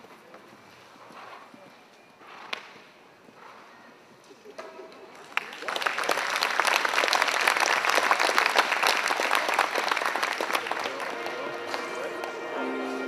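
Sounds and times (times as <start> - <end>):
crowd applauding: 5.1 - 12.4.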